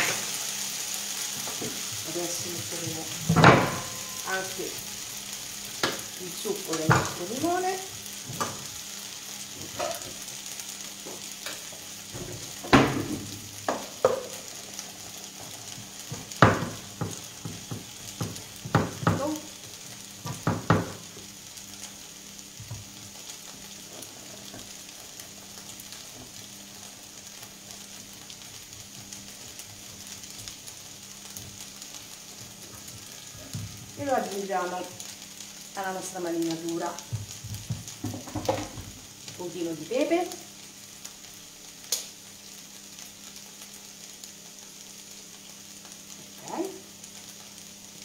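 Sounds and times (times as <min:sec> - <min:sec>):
artichokes sizzling in a frying pan: 0:00.0 - 0:48.0
knocks and clatters on counter: 0:16.1 - 0:19.2, 0:20.3 - 0:21.0, 0:37.1 - 0:38.9.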